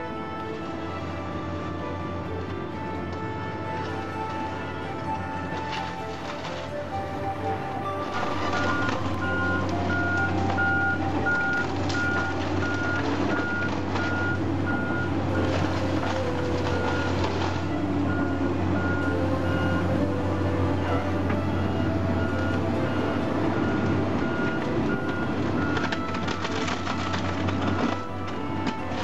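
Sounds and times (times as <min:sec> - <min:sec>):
excavator diesel engine running: 0:00.0 - 0:29.0
debris crashing and clattering: 0:05.2 - 0:06.9, 0:08.0 - 0:19.0, 0:22.2 - 0:29.0
back-up alarm beeping: 0:07.1 - 0:28.8.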